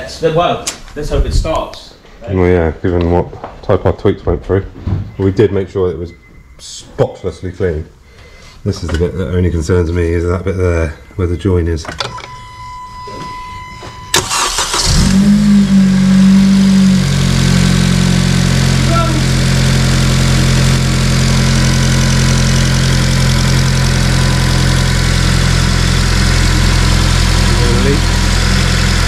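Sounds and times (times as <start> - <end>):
car engine cranking and idling: 13.6 - 29.0.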